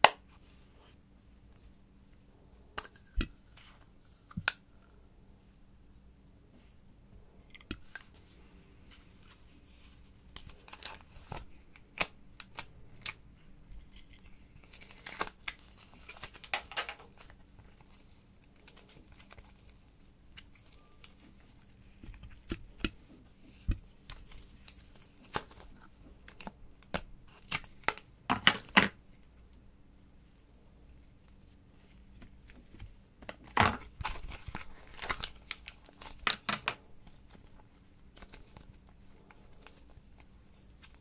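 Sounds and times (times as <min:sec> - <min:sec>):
crinkles and rustles: 0:07.6 - 0:29.3, 0:30.8 - 0:41.0.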